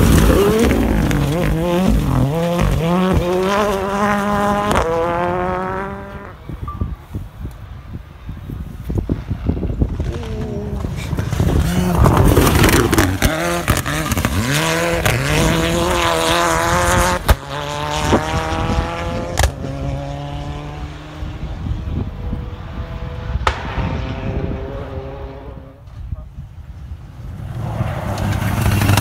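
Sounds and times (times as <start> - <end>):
rally car engine revving: 0.0 - 6.4, 9.9 - 25.8
sharp cracks: 23.4 - 24.4.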